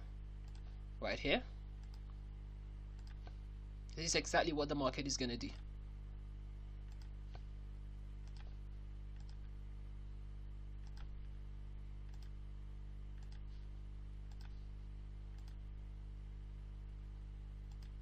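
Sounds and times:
steady low hum: 0:00.0 - 0:18.0
computer mouse clicks: 0:00.4 - 0:00.7, 0:01.8 - 0:02.2, 0:03.0 - 0:03.4, 0:06.8 - 0:07.5, 0:08.2 - 0:09.6, 0:10.8 - 0:11.4, 0:12.0 - 0:12.4, 0:13.1 - 0:13.7, 0:14.3 - 0:14.6, 0:15.3 - 0:15.6, 0:17.7 - 0:18.0.

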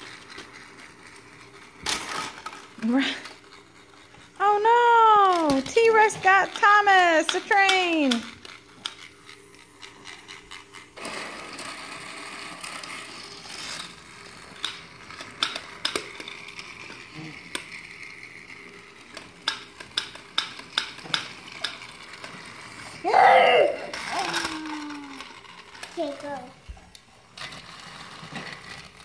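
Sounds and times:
toy train motor whirring: 0:00.0 - 0:29.0
plastic clicks and clacks: 0:19.1 - 0:22.3.

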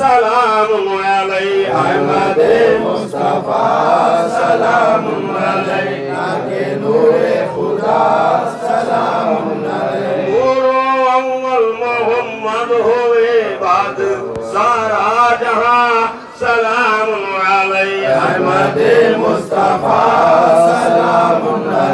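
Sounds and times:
men chanting together: 0:01.3 - 0:11.2, 0:17.3 - 0:21.9.

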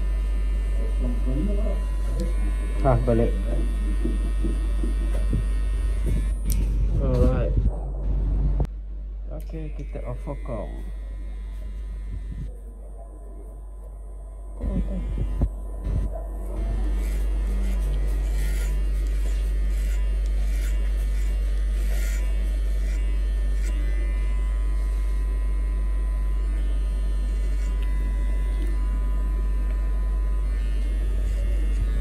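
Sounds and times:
hair clipper buzzing: 0:00.0 - 0:07.6, 0:09.4 - 0:32.0.

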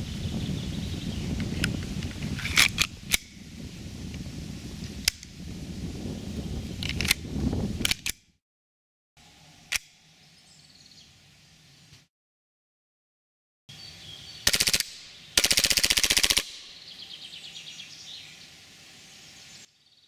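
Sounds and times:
pistol slide clicks: 0:07.8 - 0:08.2.

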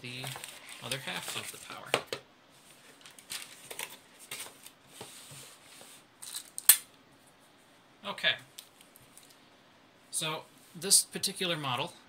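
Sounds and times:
cardboard and plastic rustling: 0:00.0 - 0:02.0, 0:02.6 - 0:06.5.

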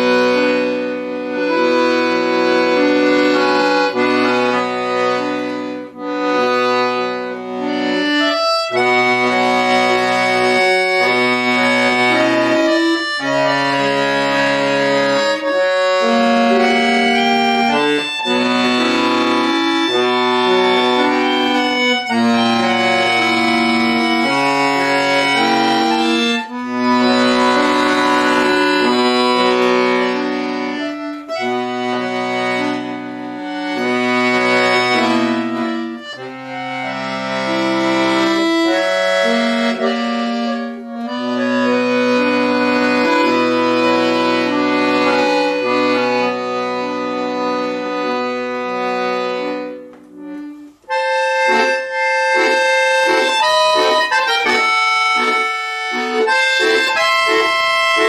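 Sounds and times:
button accordion playing: 0:00.0 - 0:58.0.

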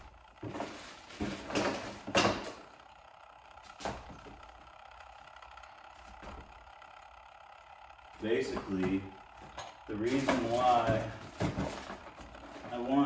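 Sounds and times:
rummaging and rustling: 0:10.0 - 0:12.8.

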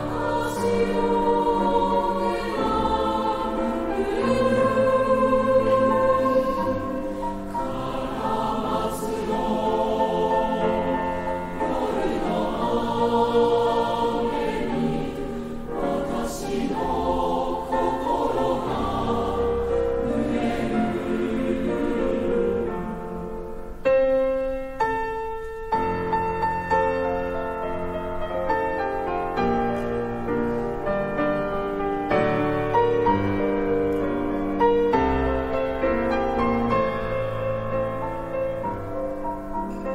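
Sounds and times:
choir singing: 0:00.0 - 0:23.8
piano accompaniment: 0:00.0 - 0:39.9.

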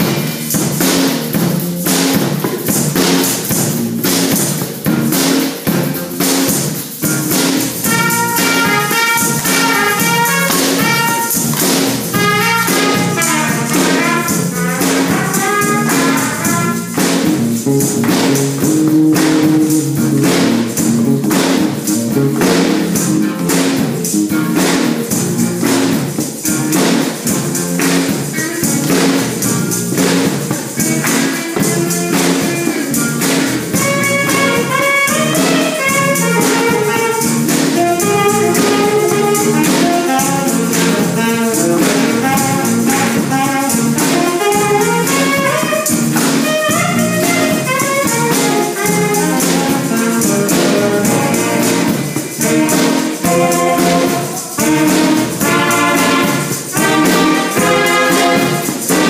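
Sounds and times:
drums and percussion: 0:00.0 - 0:59.0
wind and brass melody: 0:07.8 - 0:17.2, 0:33.8 - 0:59.0.

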